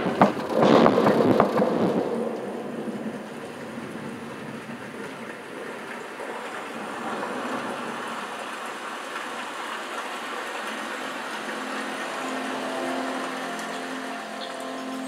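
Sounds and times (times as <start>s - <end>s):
rainforest ambience: 0.0s - 15.0s
rushing water: 0.0s - 15.0s
sustained music notes: 9.9s - 15.0s.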